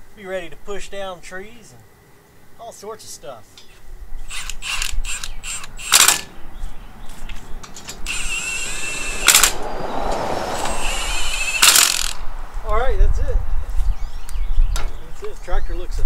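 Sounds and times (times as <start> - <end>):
impact wrench whining: 4.2 - 6.3, 7.7 - 12.3
impact wrench rattling strikes: 5.9 - 6.3, 9.2 - 9.6, 11.5 - 12.2.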